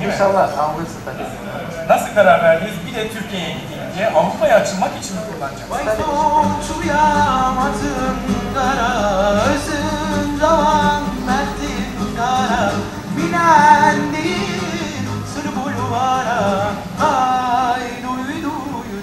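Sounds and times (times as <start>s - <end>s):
acoustic guitar: 0.0s - 19.0s
person singing ornamented melody: 5.8s - 19.0s.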